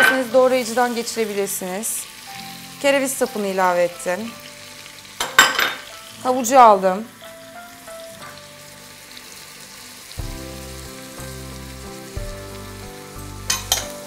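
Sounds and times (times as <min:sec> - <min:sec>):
vegetables sizzling in oil: 0:00.0 - 0:14.0
soft background music with bass: 0:05.8 - 0:14.0.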